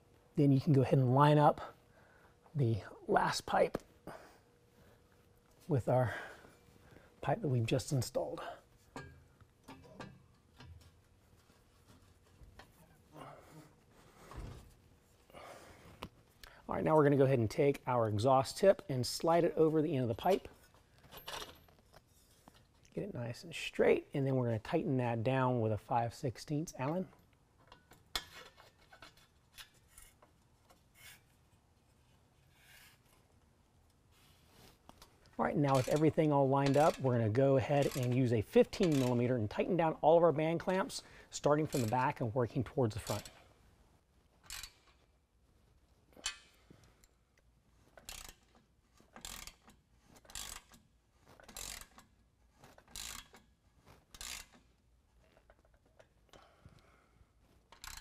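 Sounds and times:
wrench scraping and clicking: 0:27.6 - 0:31.4, 0:34.8 - 0:39.7, 0:40.6 - 0:43.5, 0:44.3 - 0:45.1, 0:46.2 - 0:56.5, 0:57.4 - 0:58.0
ratchet pawl clicking: 0:38.8 - 0:39.2, 0:44.4 - 0:45.0, 0:47.9 - 0:54.7, 0:57.7 - 0:58.0.

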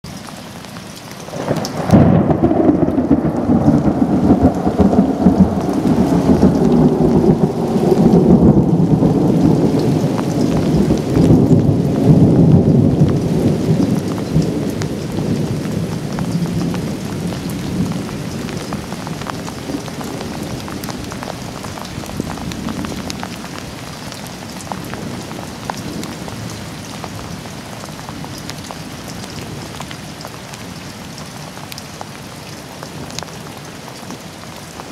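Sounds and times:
steady rain: 0:00.0 - 0:34.9
thunder crack and rumble: 0:01.3 - 0:23.9.

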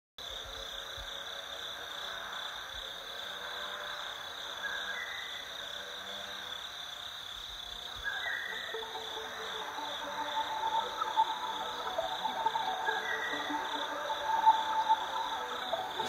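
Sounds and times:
insects chirping drone: 0:00.2 - 0:16.0
two-note rising chirp: 0:08.1 - 0:16.0.

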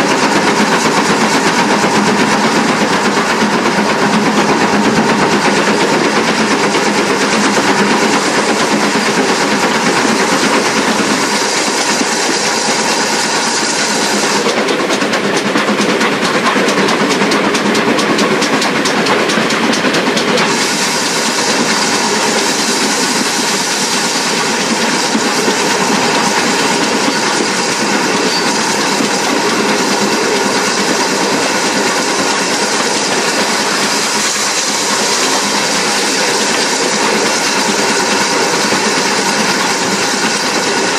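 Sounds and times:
locomotive engine: 0:00.0 - 0:40.9
steam hiss: 0:00.0 - 0:40.9
wheels clattering on rails: 0:00.0 - 0:40.9.

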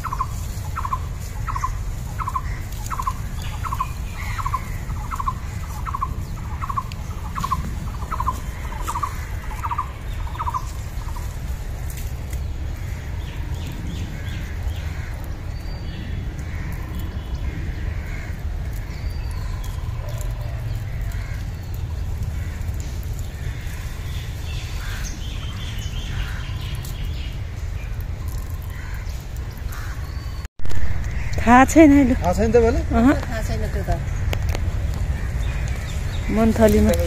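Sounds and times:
bird calls and chirps: 0:00.0 - 0:11.4, 0:12.3 - 0:30.5
steady low rumble: 0:00.0 - 0:37.0.

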